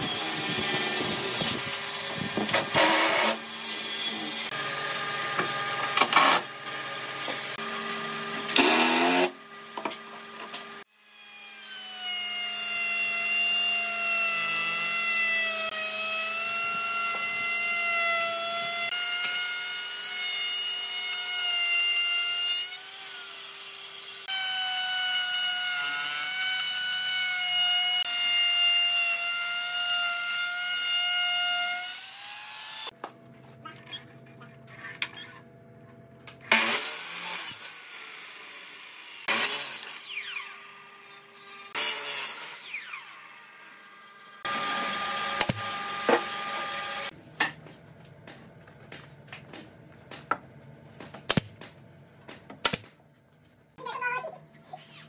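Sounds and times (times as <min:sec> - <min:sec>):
power tool cutting wood: 0:00.0 - 0:33.0, 0:36.4 - 0:47.2.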